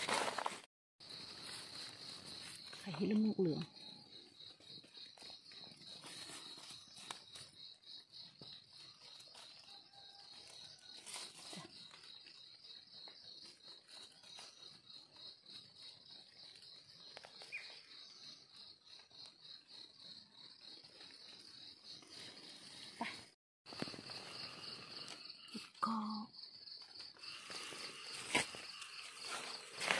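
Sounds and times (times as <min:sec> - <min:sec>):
insects trilling: 0:01.0 - 0:29.9
knife digging in leaves and soil: 0:27.4 - 0:29.9.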